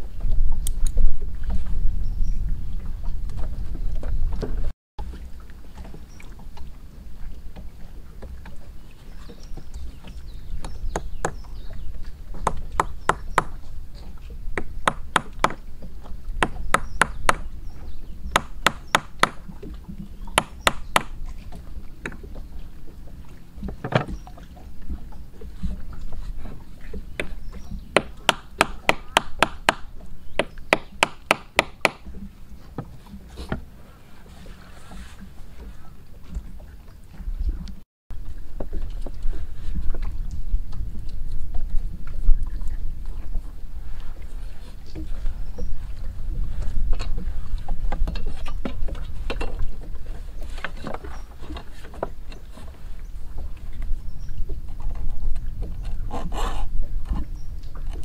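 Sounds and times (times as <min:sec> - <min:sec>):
cleaver chopping wood: 0:12.4 - 0:13.6, 0:14.6 - 0:15.6, 0:16.4 - 0:17.5, 0:18.3 - 0:19.5, 0:20.4 - 0:21.2, 0:28.0 - 0:32.1.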